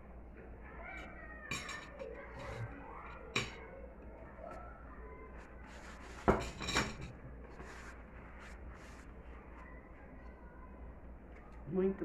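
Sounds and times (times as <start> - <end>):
tableware clinking: 1.5 - 2.7, 3.3 - 3.6, 6.2 - 7.2
tableware clatter: 1.5 - 3.6, 6.1 - 7.2.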